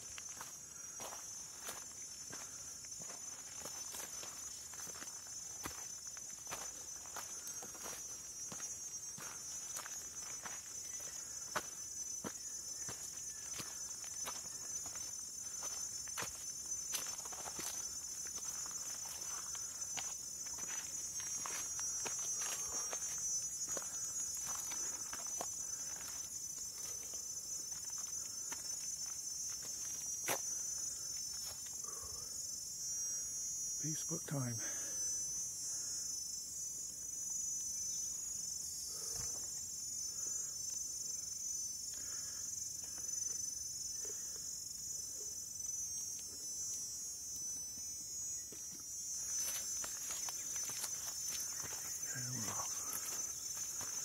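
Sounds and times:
footsteps on trail: 0:00.0 - 0:32.0, 0:45.7 - 0:54.0
forest insects chorus: 0:00.0 - 0:54.0.

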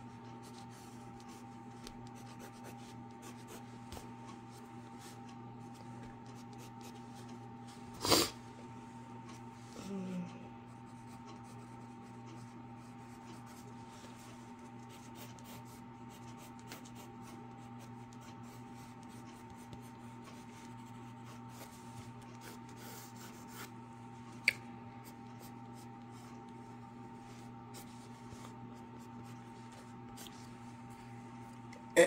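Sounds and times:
pencil scratching on paper: 0:00.3 - 0:03.8, 0:06.2 - 0:07.4, 0:10.9 - 0:23.7.

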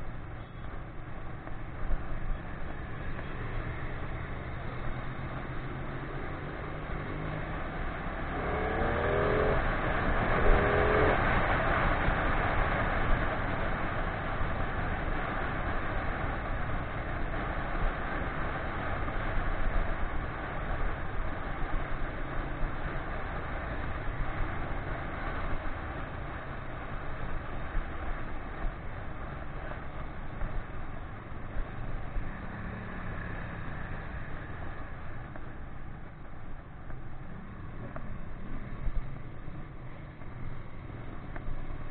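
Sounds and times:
motorcycle engine drone: 0:00.0 - 0:41.9
wind and road rush: 0:00.0 - 0:41.9.

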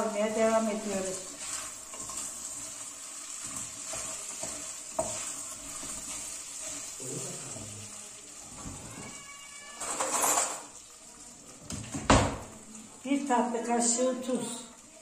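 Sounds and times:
rice sizzling in a pot: 0:00.0 - 0:15.0
spoon stirring and scraping: 0:00.7 - 0:10.8.

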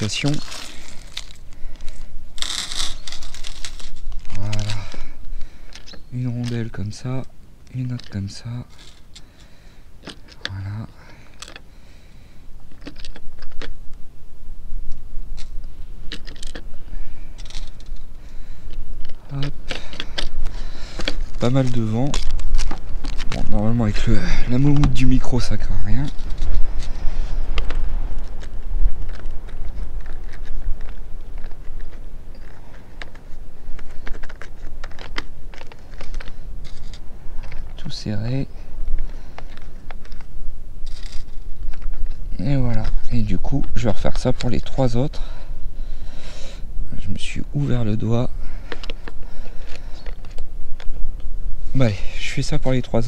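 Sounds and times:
wind buffeting microphone: 0:12.5 - 0:53.0.

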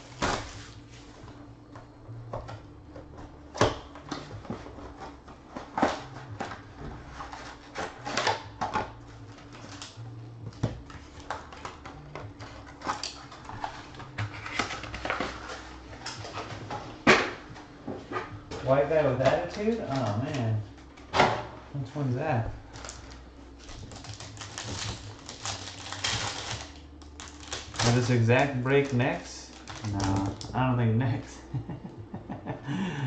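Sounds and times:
cardboard and wrapper rustling: 0:00.0 - 0:01.5, 0:04.0 - 0:17.1, 0:21.9 - 0:30.6.

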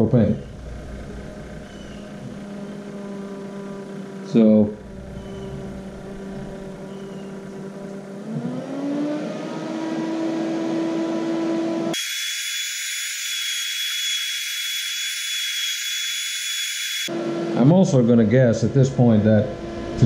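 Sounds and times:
fan motor whine: 0:00.0 - 0:20.0.

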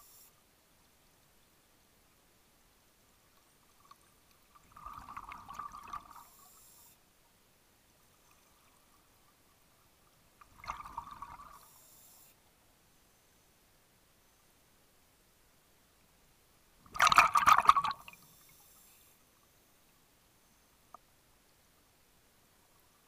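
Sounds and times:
regulator bubbling underwater: 0:04.6 - 0:06.2, 0:10.4 - 0:11.6, 0:16.9 - 0:18.2.

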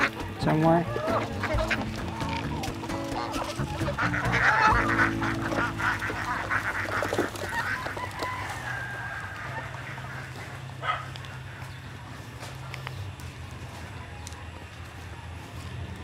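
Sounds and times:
geese honking: 0:00.0 - 0:12.5
farm fowl calling: 0:00.0 - 0:12.6.

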